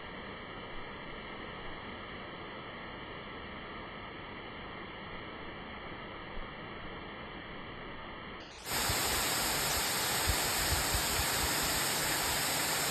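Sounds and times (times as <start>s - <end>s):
waterfall pouring onto rocks: 8.5s - 12.9s.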